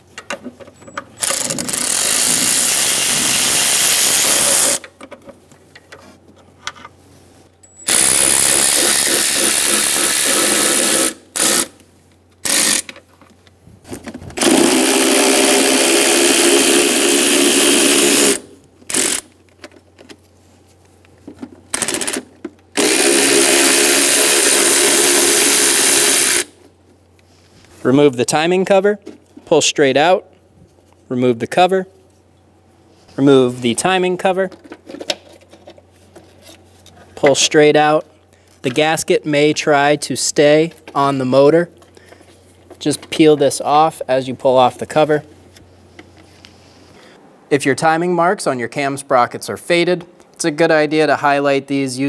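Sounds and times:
power tool spinning out bolts: 22.8 - 26.5.

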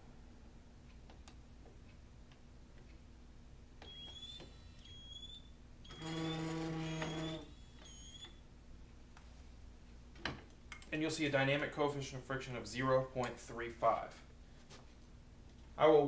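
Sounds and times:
motor buzzing hum: 3.8 - 8.4
drive motor whining: 5.8 - 8.4.

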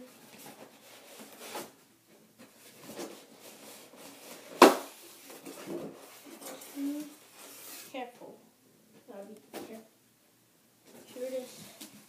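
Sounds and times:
styrofoam and cardboard rustling: 0.0 - 1.8, 2.4 - 8.0.

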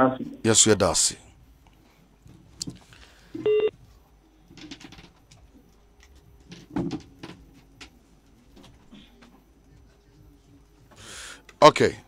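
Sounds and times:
muffled voice: 8.6 - 11.0.

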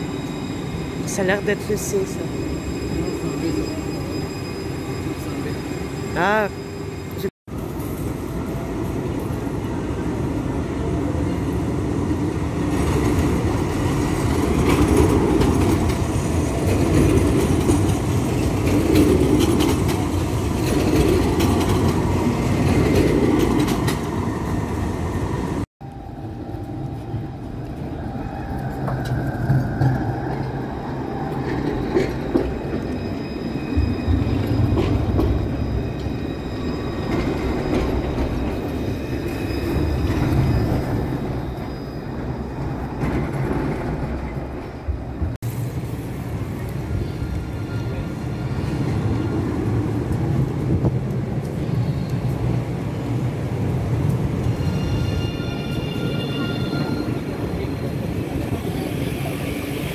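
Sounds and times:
tram wheels rumbling on rail: 0.0 - 59.9.

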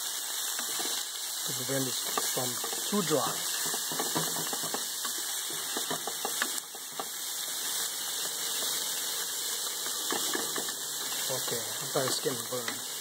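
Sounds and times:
stir-fry sizzling in a pan: 0.0 - 13.0
wooden spatula clicking on pan: 2.0 - 7.3, 10.0 - 11.2.

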